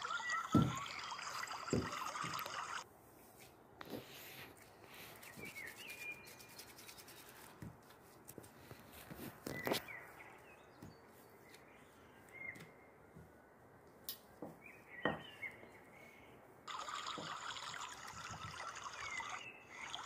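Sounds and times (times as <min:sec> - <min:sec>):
faint high chirps: 0:00.0 - 0:02.8, 0:14.8 - 0:20.0.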